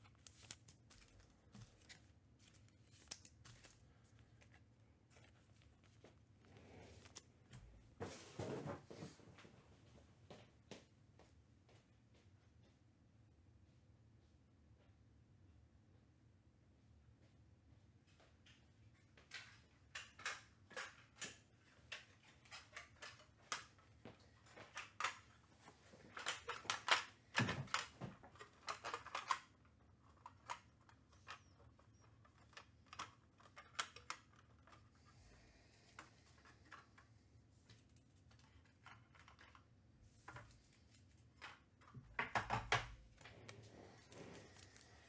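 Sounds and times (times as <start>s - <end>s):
cards clicking and rustling: 0.0s - 7.7s, 19.4s - 35.1s, 36.0s - 45.0s
wrappers rustling: 0.0s - 7.7s.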